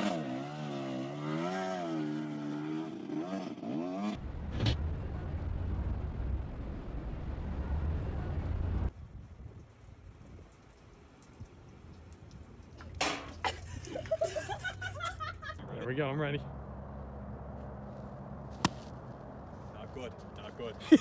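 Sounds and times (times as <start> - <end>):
dirt bike engine revving: 0.0 - 4.2.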